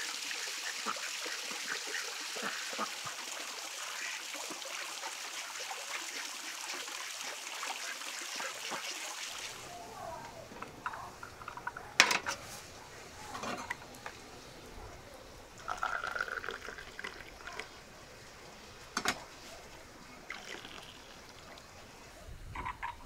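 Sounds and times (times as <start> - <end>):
liquid pouring: 15.5 - 18.6, 20.1 - 21.8.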